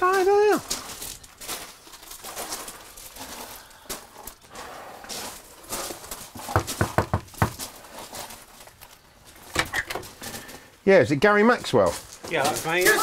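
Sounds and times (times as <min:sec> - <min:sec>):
footsteps on gravel: 0:00.0 - 0:10.7, 0:11.4 - 0:13.0
knocking on door: 0:06.5 - 0:07.6.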